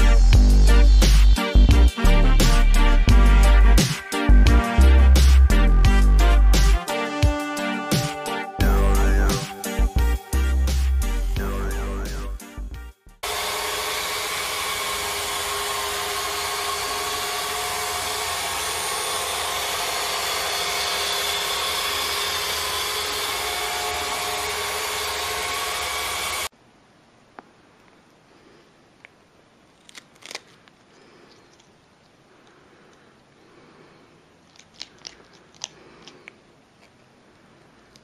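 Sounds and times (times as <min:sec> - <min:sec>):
small electric motor running: 0:13.2 - 0:26.5.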